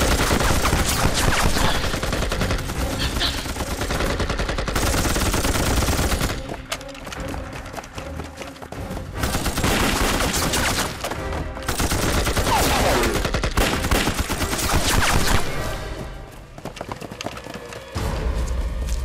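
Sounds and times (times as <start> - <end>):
heavy gunfire: 0.0 - 6.4.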